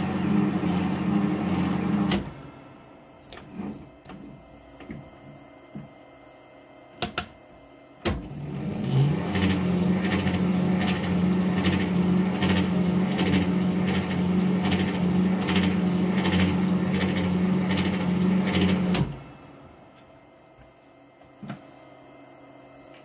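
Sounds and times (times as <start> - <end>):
lathe motor running: 0.0 - 2.5, 8.4 - 19.0.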